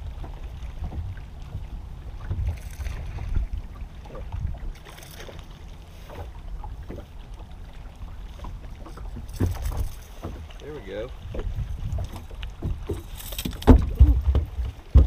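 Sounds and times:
wind buffeting microphone: 0.0 - 4.9, 7.8 - 15.0
waves lapping against boat hull: 0.0 - 15.0.

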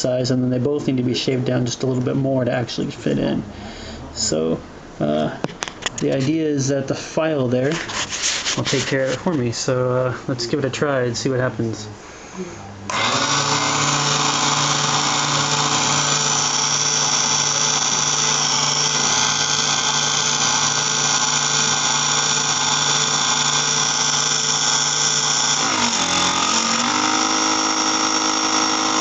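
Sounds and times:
file shaving wood: 12.9 - 29.0
mini mill motor running: 12.9 - 29.0.

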